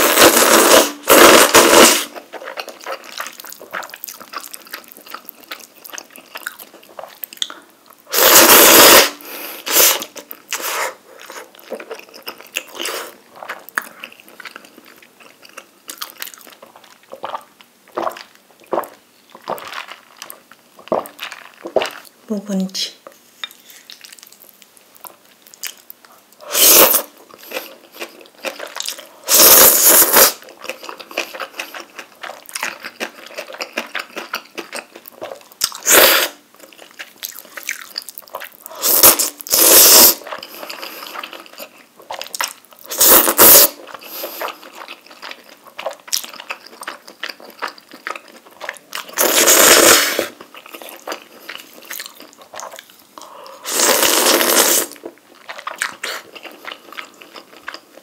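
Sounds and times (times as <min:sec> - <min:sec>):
person slurping noodles: 0:00.0 - 0:02.2, 0:08.1 - 0:11.5, 0:26.4 - 0:28.0, 0:29.2 - 0:30.4, 0:35.8 - 0:36.4, 0:38.7 - 0:41.6, 0:42.9 - 0:44.7, 0:49.1 - 0:50.4, 0:53.2 - 0:55.0
wet chewing: 0:00.2 - 0:08.0, 0:09.7 - 0:22.2, 0:23.4 - 0:58.0.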